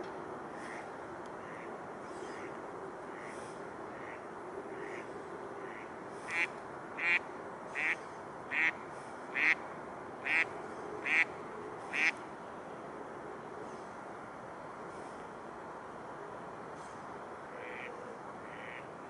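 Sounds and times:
duck quacking: 0:05.7 - 0:07.2, 0:07.8 - 0:08.7, 0:10.2 - 0:10.4, 0:11.1 - 0:11.3, 0:11.9 - 0:12.1, 0:17.6 - 0:17.9, 0:18.5 - 0:18.8.

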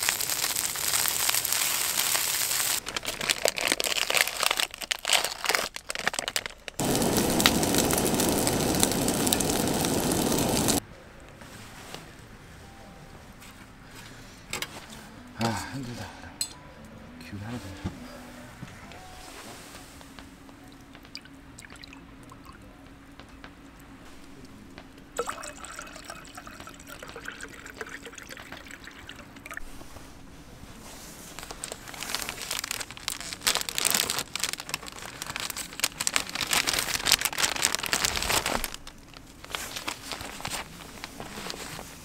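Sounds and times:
liquid pouring and trickling: 0:21.0 - 0:22.6, 0:25.2 - 0:29.8.

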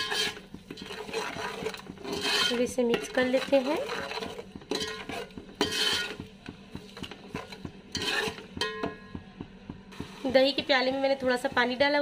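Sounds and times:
spoon scraping pot: 0:00.0 - 0:09.0.

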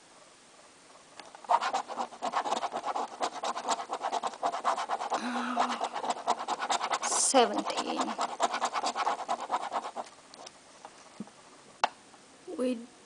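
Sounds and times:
coin scraping a scratch card: 0:01.4 - 0:10.5.

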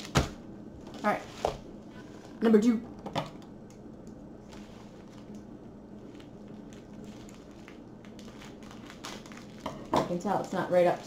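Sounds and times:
low steady hum: 0:00.0 - 0:11.0
plastic wrapping rustling: 0:04.4 - 0:11.0.

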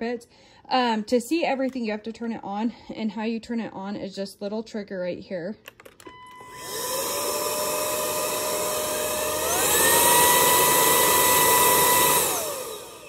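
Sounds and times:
stick vacuum motor whining: 0:06.1 - 0:13.0.

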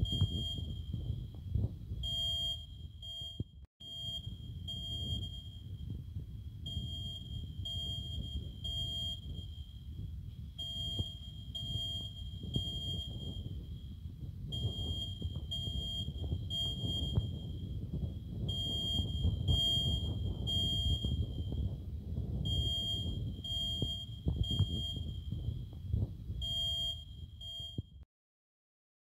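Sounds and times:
fire alarm beeping: 0:00.0 - 0:01.4, 0:02.0 - 0:28.0
low background rumble: 0:04.3 - 0:26.9.

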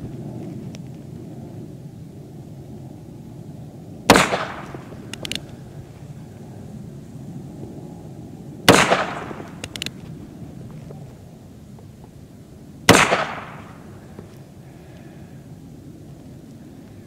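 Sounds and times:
light clicks: 0:05.1 - 0:05.6
revolver shots: 0:08.7 - 0:09.6.

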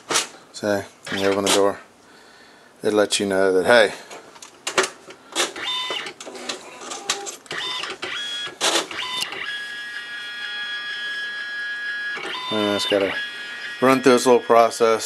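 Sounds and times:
printer mechanism clicks and clunks: 0:04.6 - 0:09.6, 0:12.1 - 0:12.6
printer motor whine: 0:05.5 - 0:15.0.

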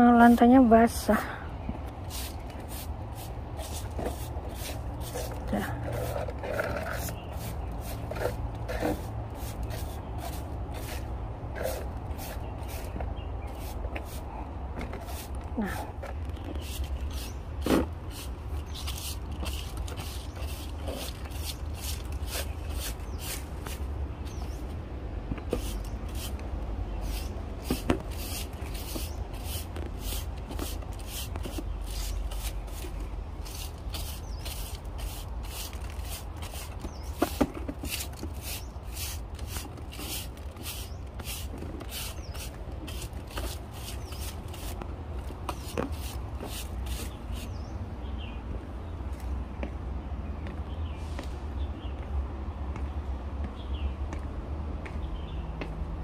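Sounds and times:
broom sweeping wet leaves: 0:02.0 - 0:24.6, 0:25.4 - 0:44.8, 0:45.5 - 0:47.6.

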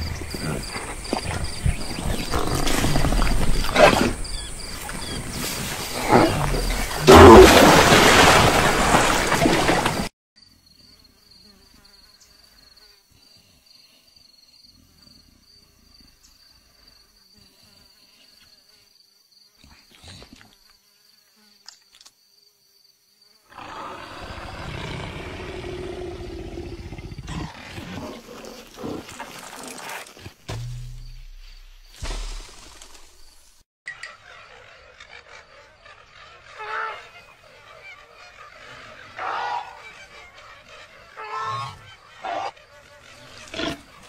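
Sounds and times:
water splashing: 0:07.1 - 0:10.1
insect buzz: 0:10.4 - 0:33.6, 0:41.1 - 0:44.0.

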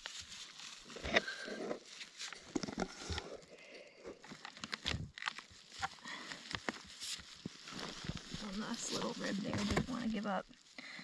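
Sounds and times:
loppers crunching through bone: 0:04.1 - 0:08.5.

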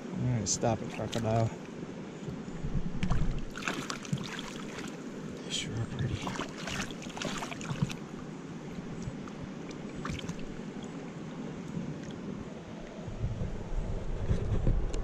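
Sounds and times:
shallow river water running: 0:00.0 - 0:15.0
fish splashing in water: 0:03.0 - 0:05.2, 0:06.2 - 0:08.3, 0:09.2 - 0:10.7.

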